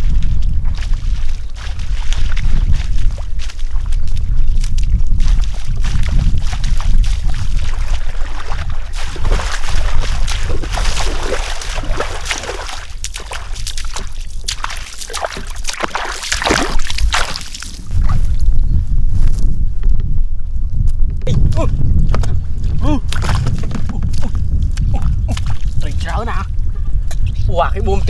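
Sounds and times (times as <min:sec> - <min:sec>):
footsteps splashing through water: 0:00.0 - 0:18.4, 0:22.1 - 0:26.1
wind rumble on microphone: 0:00.0 - 0:28.0.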